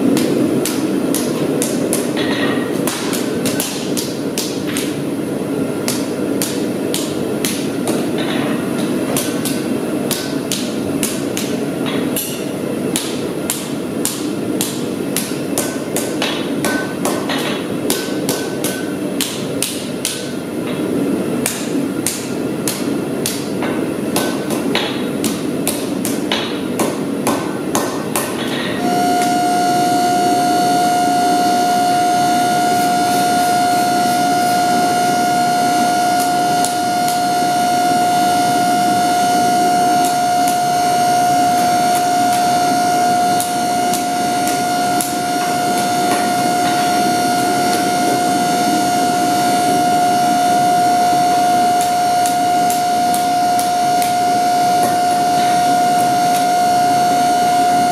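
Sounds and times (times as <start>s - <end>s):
hammer striking steel on anvil: 0.1s - 5.0s, 5.8s - 20.8s, 21.4s - 30.1s, 30.8s - 49.0s, 51.3s - 56.8s
steady pitched tone: 28.8s - 57.9s.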